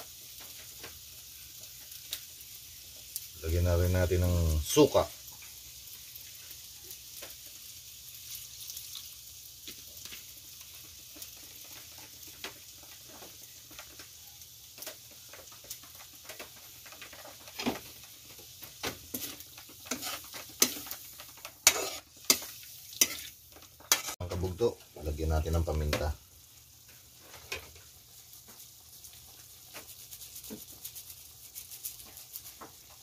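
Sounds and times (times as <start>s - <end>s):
seafood sizzling in a wok: 0.0s - 33.0s
spatula scraping a wok: 14.8s - 24.3s.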